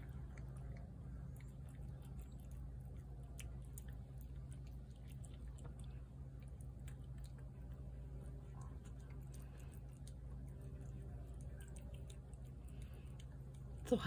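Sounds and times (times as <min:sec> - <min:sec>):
cat eating wet food: 0:00.0 - 0:14.0
low hum: 0:00.0 - 0:14.0.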